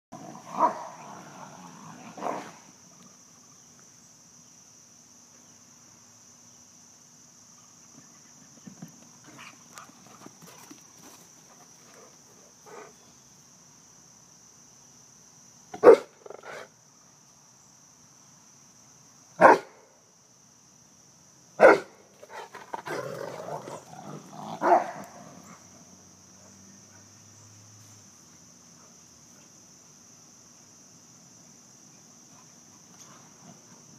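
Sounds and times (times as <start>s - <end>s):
high drone of insects: 0.1s - 33.9s
dogs barking: 15.8s - 16.7s, 21.6s - 21.9s, 24.6s - 25.2s.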